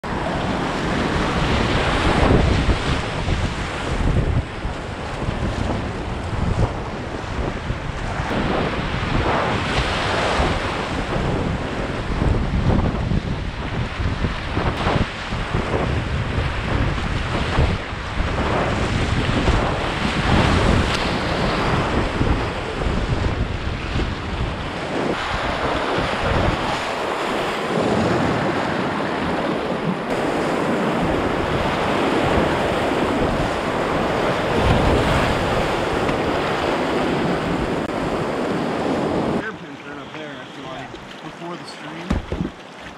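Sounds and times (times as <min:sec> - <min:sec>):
wind noise on microphone: 0:00.0 - 0:41.2, 0:42.0 - 0:42.9
whitewater rapids rushing: 0:24.8 - 0:42.9.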